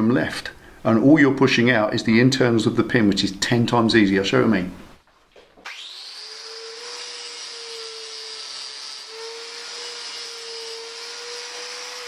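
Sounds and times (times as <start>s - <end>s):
angle grinder grinding metal: 5.7s - 12.0s.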